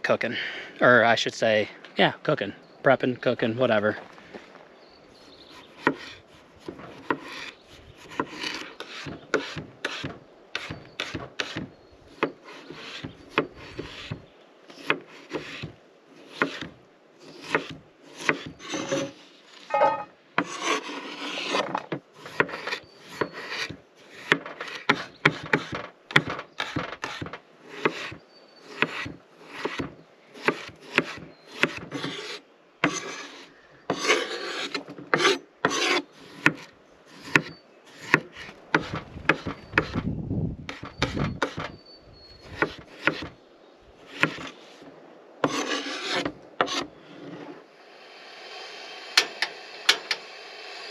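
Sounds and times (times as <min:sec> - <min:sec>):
knife scraping board: 0:05.5 - 0:40.0, 0:40.7 - 0:41.8, 0:42.4 - 0:43.4, 0:44.1 - 0:44.8, 0:45.4 - 0:47.6
knife chopping on wooden board: 0:08.1 - 0:14.2, 0:14.8 - 0:16.7, 0:17.4 - 0:19.1, 0:19.7 - 0:28.2, 0:28.8 - 0:33.1, 0:35.1 - 0:40.0, 0:42.6 - 0:43.4, 0:44.2 - 0:44.5.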